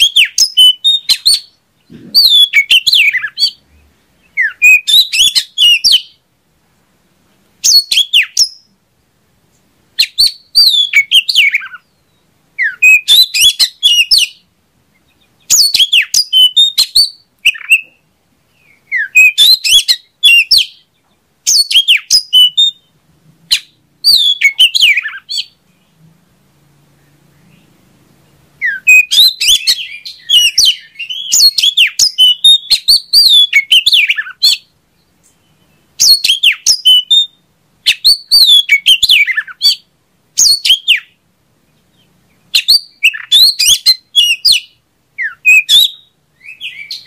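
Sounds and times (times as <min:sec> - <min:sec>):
bird singing whistled phrases: 0:00.0 - 0:06.2, 0:07.6 - 0:08.7, 0:10.0 - 0:14.4, 0:15.1 - 0:18.0, 0:18.6 - 0:20.8, 0:21.5 - 0:22.9, 0:23.5 - 0:25.6, 0:28.6 - 0:34.7, 0:35.4 - 0:41.2, 0:42.0 - 0:47.0.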